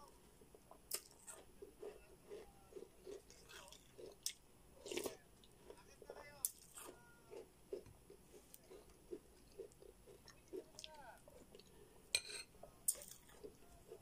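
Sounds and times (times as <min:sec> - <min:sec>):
person chewing food: 0:00.0 - 0:12.0, 0:12.6 - 0:14.0
metal spoon clinking on bowl: 0:12.1 - 0:13.1.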